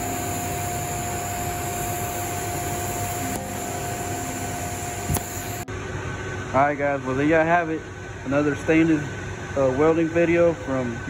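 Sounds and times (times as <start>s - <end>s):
welding arc hissing: 0.0s - 5.7s
constant hum: 0.0s - 11.0s.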